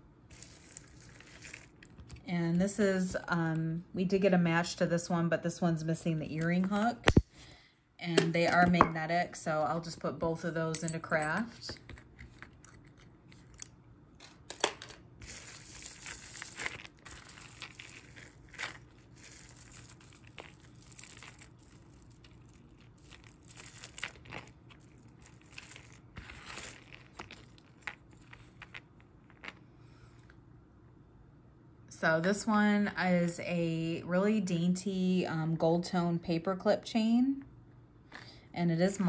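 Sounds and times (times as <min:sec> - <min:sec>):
jewelry rustling and clinking: 0:00.3 - 0:02.2, 0:10.7 - 0:29.6.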